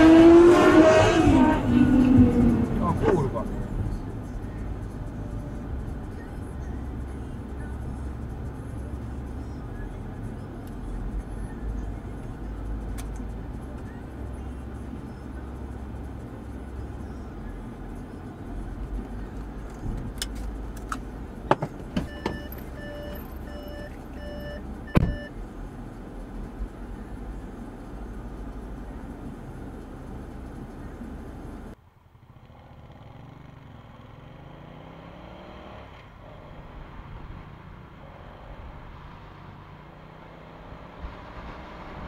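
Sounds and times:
car engine and road rumble: 0:00.0 - 0:42.0
car warning chime beeping: 0:22.0 - 0:25.3.

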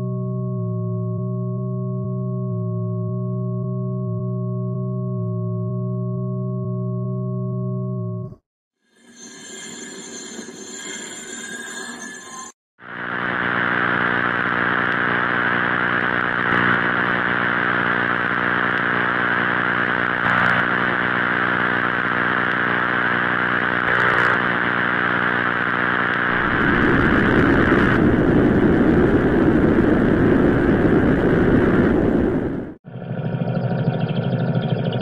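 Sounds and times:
buzzy drone: 0:11.8 - 0:35.0.

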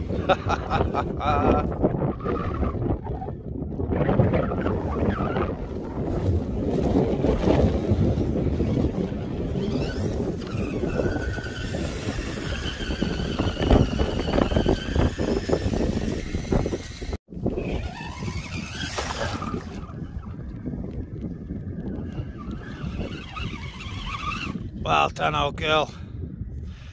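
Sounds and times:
wind noise on microphone: 0:00.0 - 0:26.9
electric motor whining: 0:06.0 - 0:24.7.

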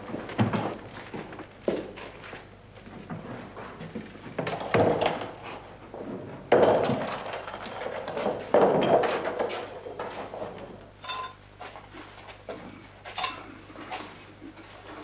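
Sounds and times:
barrels rolling on ground: 0:03.1 - 0:10.8.

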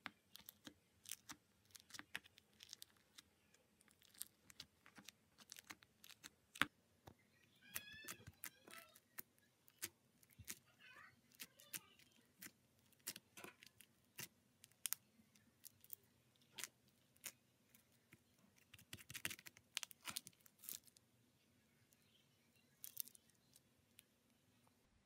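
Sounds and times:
slime crackling and popping: 0:00.0 - 0:06.7, 0:11.3 - 0:21.0.

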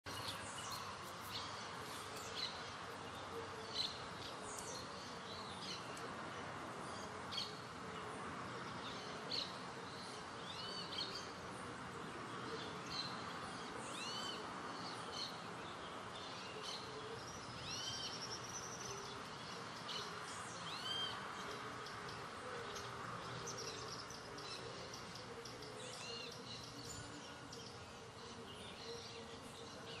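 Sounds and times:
birds chirping: 0:00.1 - 0:30.0.

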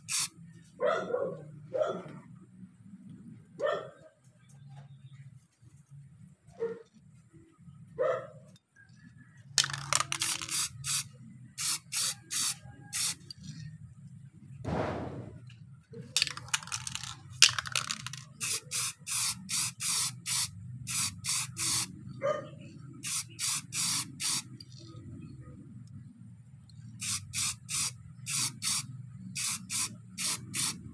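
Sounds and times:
spray paint can hissing bursts: 0:00.0 - 0:00.3, 0:09.6 - 0:13.5, 0:16.2 - 0:21.9, 0:23.0 - 0:24.6, 0:27.0 - 0:30.9.

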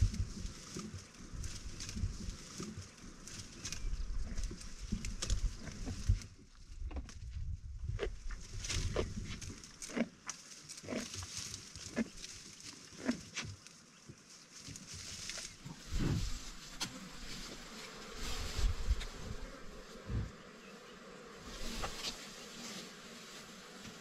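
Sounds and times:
flies buzzing: 0:15.6 - 0:24.0.

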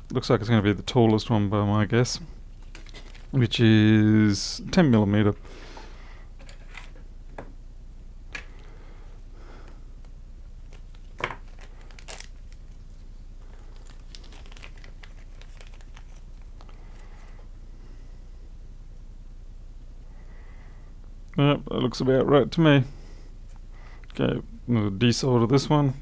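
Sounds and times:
plastic bag crinkling: 0:02.5 - 0:03.4, 0:10.6 - 0:17.3.

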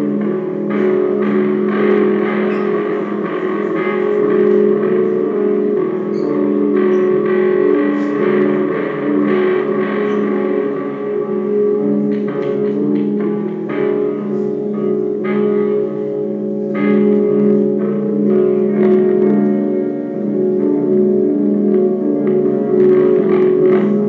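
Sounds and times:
guitar notes ringing: 0:00.0 - 0:24.0
sustained steady drone: 0:00.0 - 0:24.0.

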